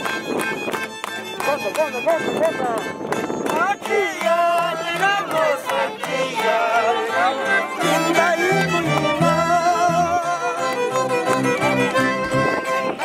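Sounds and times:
folk band playing lively tune: 0:00.0 - 0:13.0
man singing: 0:03.5 - 0:11.1.

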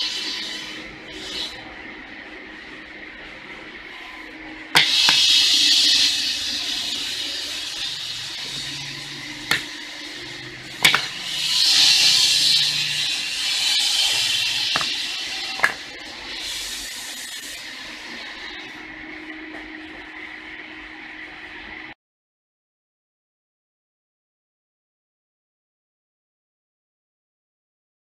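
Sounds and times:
loud hissing noise: 0:00.0 - 0:02.0, 0:04.0 - 0:22.0.

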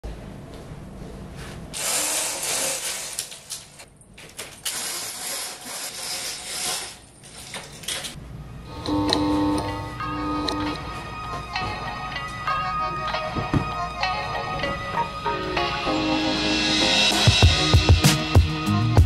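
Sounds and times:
roller shade pull chain rattling: 0:01.9 - 0:08.2.

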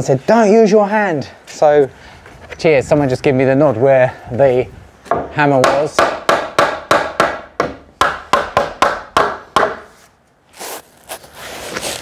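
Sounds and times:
hammer knocking on wood: 0:05.1 - 0:09.9.

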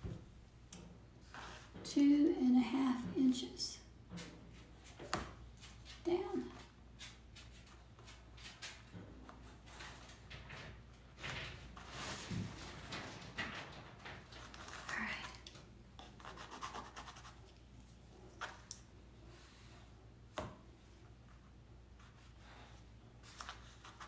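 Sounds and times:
pencil scratching on canvas: 0:16.0 - 0:17.5.

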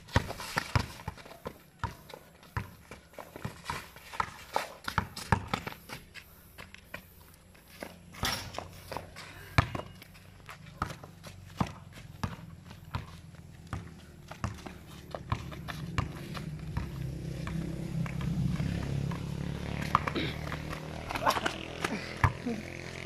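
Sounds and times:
basketball bouncing on concrete: 0:00.0 - 0:22.6
low hum: 0:12.8 - 0:22.6.

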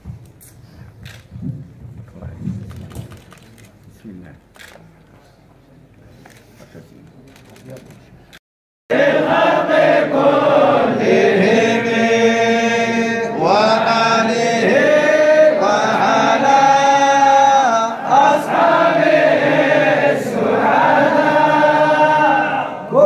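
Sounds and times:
men chanting in unison: 0:08.9 - 0:23.0.

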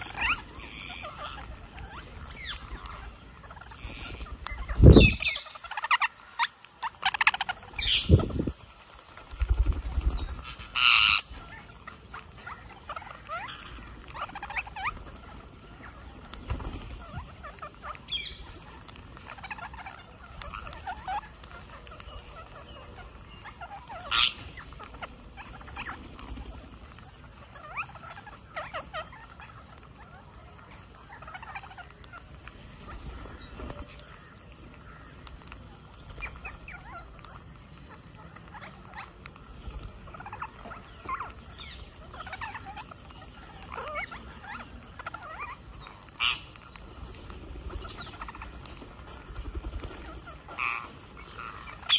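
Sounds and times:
beaks pecking and clicking: 0:00.0 - 0:51.9
faint steady high tone: 0:00.0 - 0:51.9
parakeets chattering: 0:00.0 - 0:51.9
loud parakeet calls: 0:10.4 - 0:11.6, 0:22.4 - 0:26.0.

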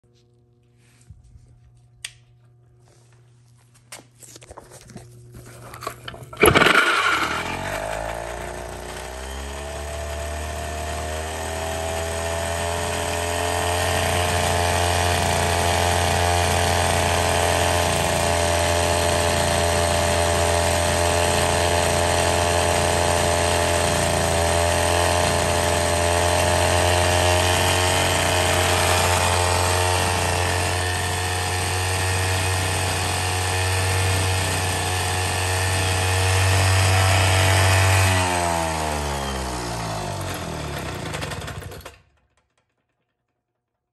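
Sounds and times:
two-stroke chainsaw engine running: 0:05.5 - 0:42.7
recoil starter clicks and rattles: 0:05.7 - 0:43.5.

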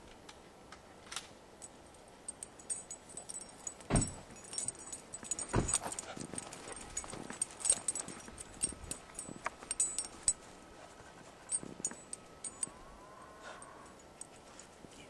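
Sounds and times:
dog collar jingling: 0:01.6 - 0:12.8.

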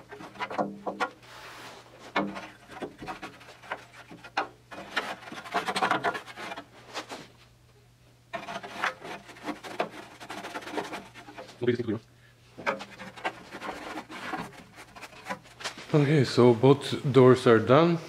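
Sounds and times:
scrubbing on sheet metal: 0:00.0 - 0:07.2, 0:08.3 - 0:11.7, 0:12.6 - 0:15.8.

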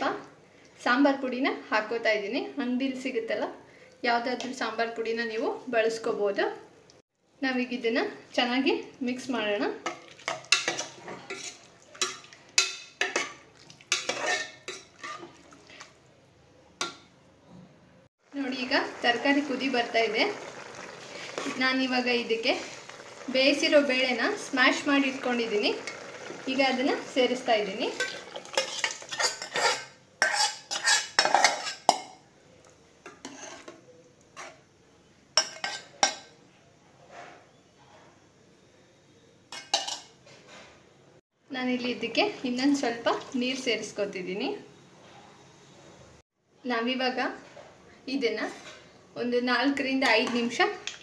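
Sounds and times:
ladle clanking on metal pot: 0:09.8 - 0:15.4
metal ladle scraping a metal pot: 0:10.3 - 0:13.3, 0:13.9 - 0:15.5, 0:24.0 - 0:32.0, 0:33.2 - 0:33.8.

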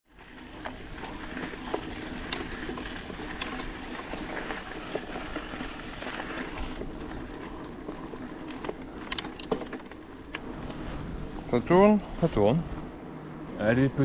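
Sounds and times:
bike clicks and rattles: 0:00.2 - 0:10.8.

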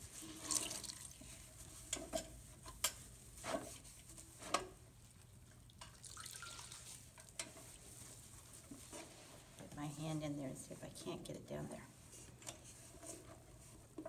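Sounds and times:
water dripping and splashing in basin: 0:00.4 - 0:01.2, 0:05.7 - 0:07.4.

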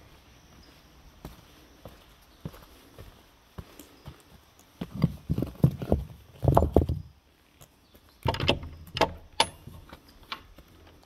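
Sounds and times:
knocks and thumps: 0:04.8 - 0:07.1.

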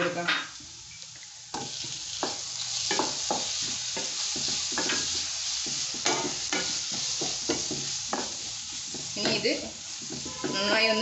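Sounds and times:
vegetables sizzling in oil: 0:00.0 - 0:11.0
wooden spatula scraping a pan: 0:02.9 - 0:11.0.

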